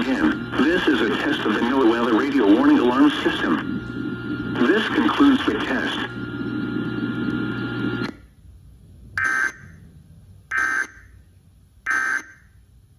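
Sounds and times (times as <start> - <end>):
radio speaker hiss and hum: 0.0 - 11.0
short data bursts: 9.2 - 9.8, 11.9 - 12.5.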